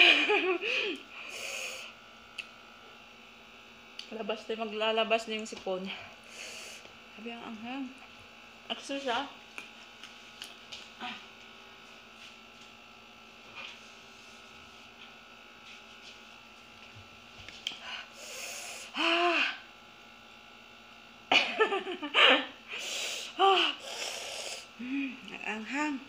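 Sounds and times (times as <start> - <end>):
faint steady hum: 0.0 - 26.0
woman sniffling: 22.2 - 25.2
nose blowing into tissue: 22.7 - 24.7.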